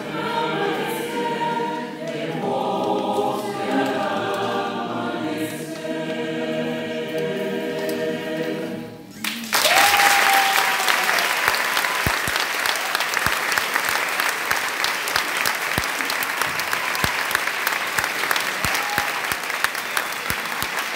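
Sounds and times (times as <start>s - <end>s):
choir singing a cappella: 0.0s - 9.2s
audience applause: 9.2s - 20.9s.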